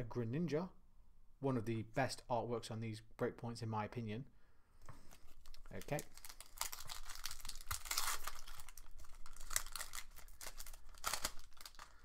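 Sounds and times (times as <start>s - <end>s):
foil wrapper tearing and crinkling: 5.1s - 12.0s.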